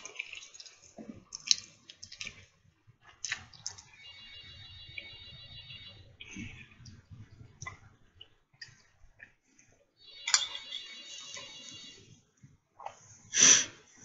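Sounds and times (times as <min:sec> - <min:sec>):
mouth clicks and chewing: 0:00.0 - 0:02.5, 0:03.1 - 0:03.9.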